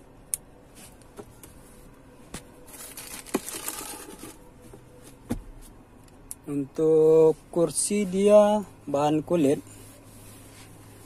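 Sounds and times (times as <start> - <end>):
plastic bag crinkling: 2.7 - 4.4.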